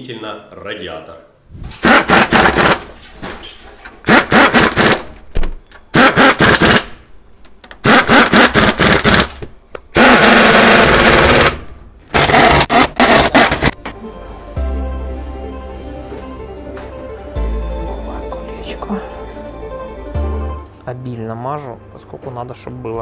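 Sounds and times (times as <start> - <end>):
pneumatic impact wrench hammering: 1.7 - 5.2, 5.9 - 7.0, 7.8 - 13.8.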